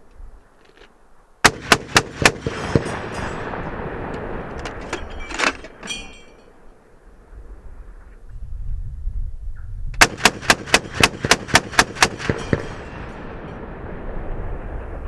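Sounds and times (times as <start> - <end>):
ringing metal clank: 4.7 - 6.8, 12.2 - 13.3.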